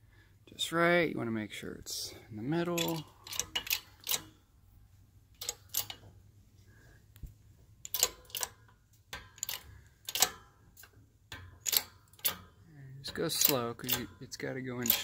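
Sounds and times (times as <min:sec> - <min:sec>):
sharp metallic clicks of shop press: 0:02.7 - 0:04.4, 0:05.4 - 0:06.1, 0:07.8 - 0:15.0.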